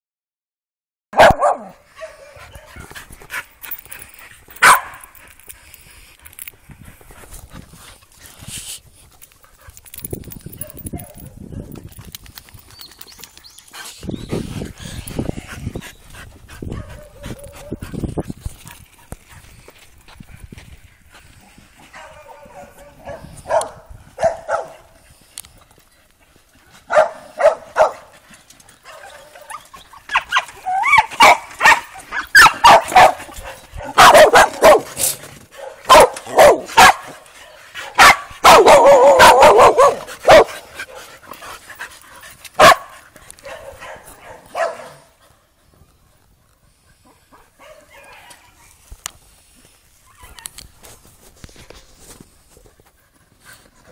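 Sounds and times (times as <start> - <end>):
dogs barking: 1.2 - 3.0, 4.6 - 5.2, 16.7 - 17.8, 21.9 - 24.9, 26.9 - 28.1, 28.8 - 35.0, 35.6 - 37.2, 37.8 - 41.1, 42.6 - 45.2.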